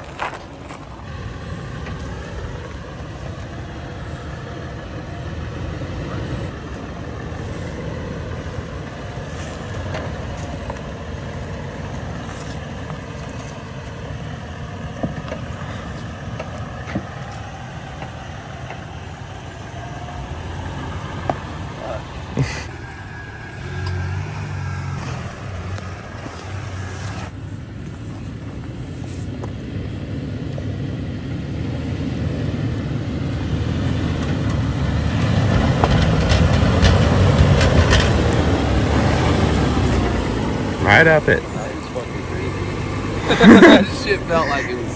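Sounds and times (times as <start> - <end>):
suv engine running: 0.0 - 44.9.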